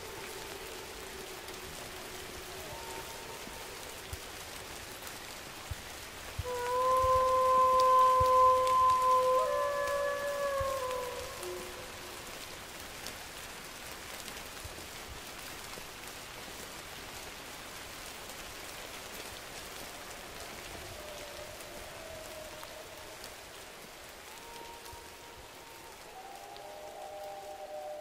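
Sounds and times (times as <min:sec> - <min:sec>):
faint wolf howl: 0:00.0 - 0:04.8, 0:06.4 - 0:13.0, 0:19.4 - 0:28.0
steady rain falling: 0:00.0 - 0:28.0.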